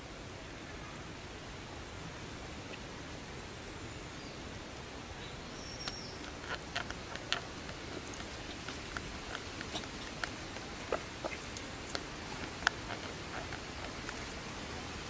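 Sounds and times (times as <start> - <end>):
outdoor hiss: 0.0 - 15.0
twigs rustling and snapping: 5.8 - 14.5.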